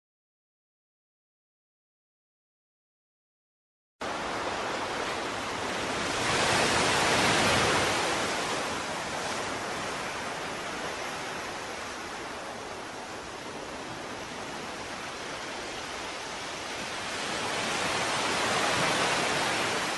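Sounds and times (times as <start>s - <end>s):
ocean surf rushing: 4.0s - 19.9s.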